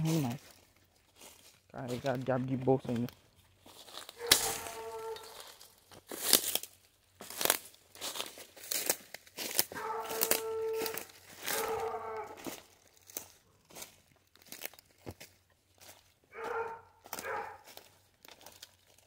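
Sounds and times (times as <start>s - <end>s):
crunching through dry undergrowth: 0.0s - 19.0s
hound baying: 4.2s - 5.4s, 9.7s - 12.6s, 16.3s - 17.8s.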